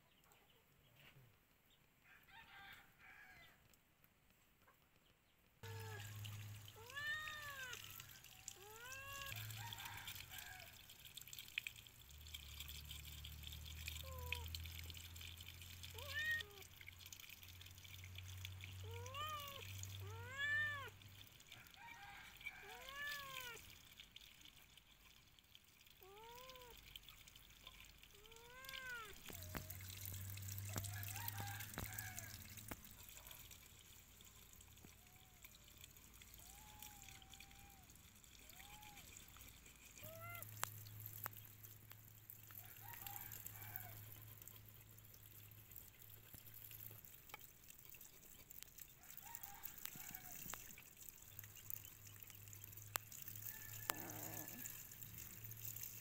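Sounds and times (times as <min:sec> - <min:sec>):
water trickling from a hose: 0:01.2 - 0:56.0
cat meowing: 0:06.8 - 0:08.0, 0:15.9 - 0:16.7, 0:18.8 - 0:21.0, 0:28.2 - 0:29.6, 0:40.0 - 0:40.5.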